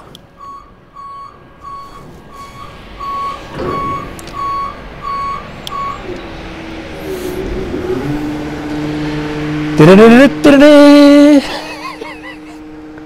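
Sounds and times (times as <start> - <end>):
warning alarm beeping: 0.4 - 6.1.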